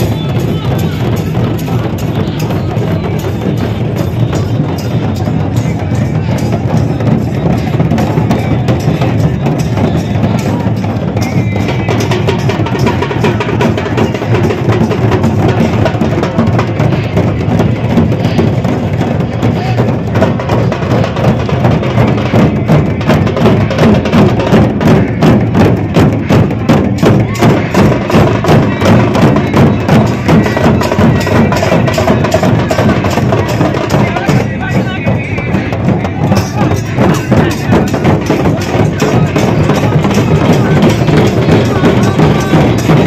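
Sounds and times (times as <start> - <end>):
barrel drums beaten with sticks: 0.0 - 43.0
big crowd noise: 0.0 - 43.0.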